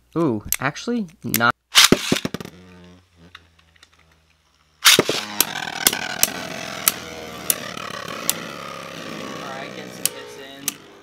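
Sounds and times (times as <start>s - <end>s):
spinning top launched hit: 1.8s - 3.3s, 4.8s - 10.9s
spinning tops whirring on plastic: 1.8s - 4.2s, 4.8s - 10.9s.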